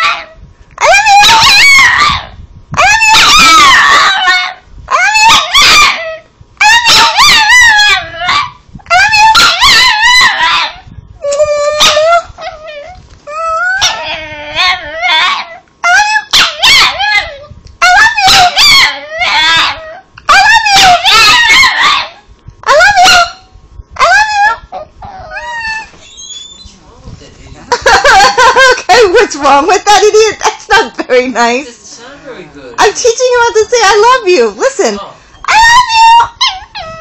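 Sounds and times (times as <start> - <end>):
small dog howling: 0.0 - 23.4, 24.0 - 26.8, 35.4 - 37.0.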